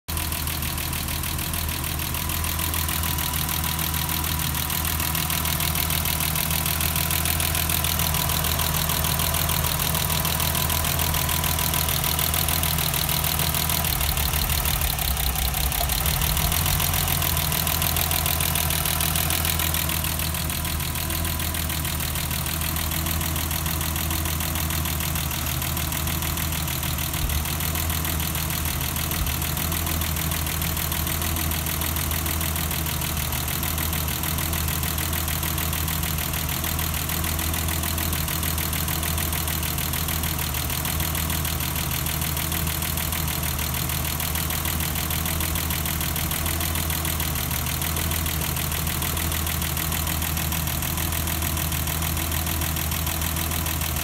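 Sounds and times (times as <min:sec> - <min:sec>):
car engine idling: 0:00.1 - 0:54.0
fast even engine ticking: 0:00.1 - 0:54.0.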